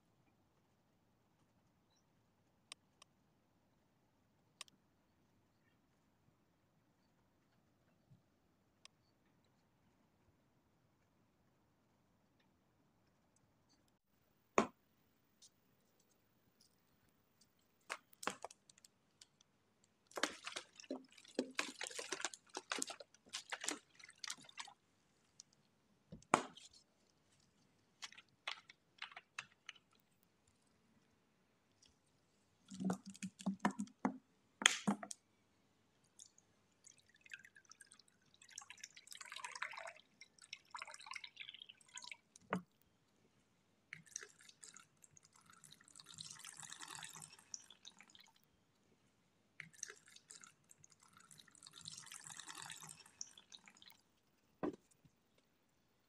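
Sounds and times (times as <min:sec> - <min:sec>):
water pouring into plastic container: 0:20.0 - 0:24.8, 0:32.6 - 0:34.0, 0:36.2 - 0:42.7, 0:43.9 - 0:48.5, 0:49.6 - 0:54.2.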